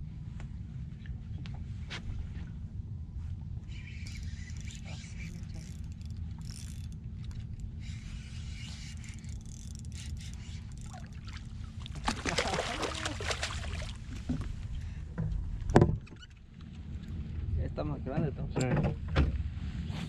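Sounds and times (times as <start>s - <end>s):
low steady rumble: 0.0s - 20.0s
water lapping against boat hull: 3.7s - 17.4s.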